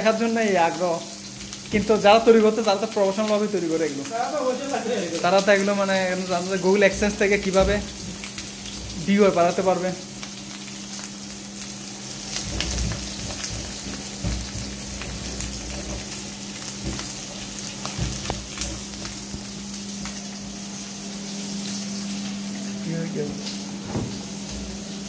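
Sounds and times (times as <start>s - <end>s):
food sizzling in hot oil: 0.0s - 25.0s
stirring clicks and knocks: 12.3s - 20.2s.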